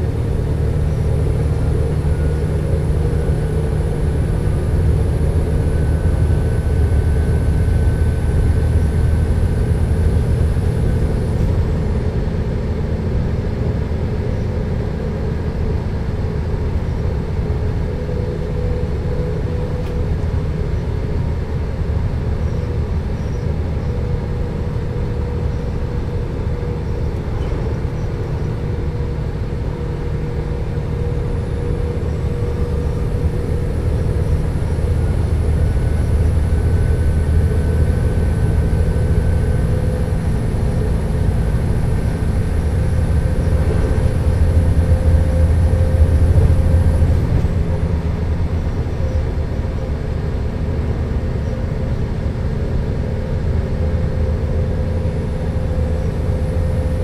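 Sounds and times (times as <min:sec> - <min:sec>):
constant hum: 0:00.0 - 0:57.0
diesel engines idling: 0:00.0 - 0:57.0.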